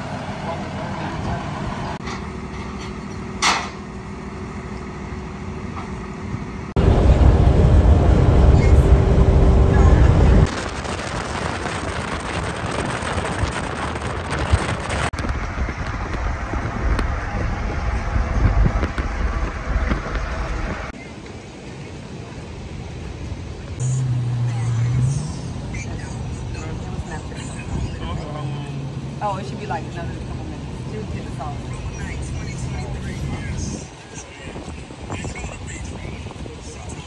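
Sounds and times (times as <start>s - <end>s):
vehicle running with road noise: 0.0s - 37.0s
loud low-pitched rumble: 6.7s - 21.0s.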